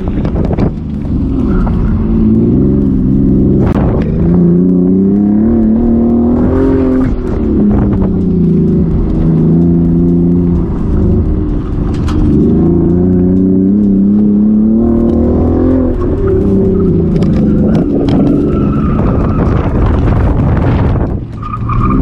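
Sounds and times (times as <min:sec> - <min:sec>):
car engine revving: 0:00.0 - 0:22.0
tyres squealing: 0:16.0 - 0:19.8.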